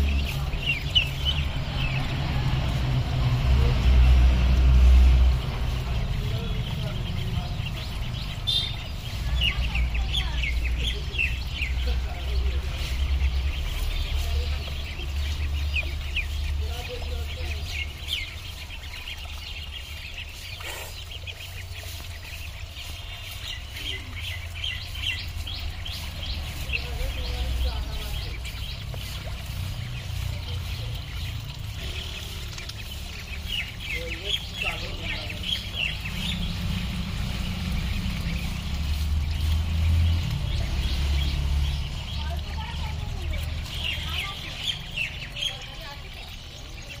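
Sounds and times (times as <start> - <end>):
ducklings peeping: 0.0 - 47.0
faint trickling splash: 0.0 - 47.0.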